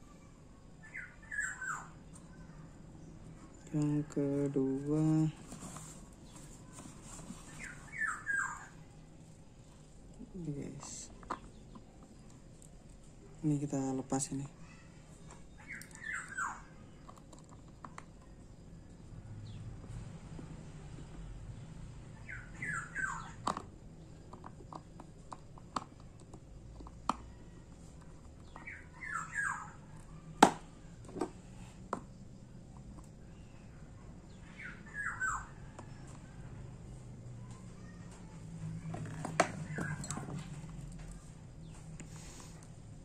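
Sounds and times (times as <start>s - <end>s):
bird chirping: 0.8s - 5.4s, 6.2s - 8.9s, 13.4s - 17.1s, 20.8s - 24.2s, 28.3s - 30.2s, 33.3s - 36.1s, 38.8s - 41.9s.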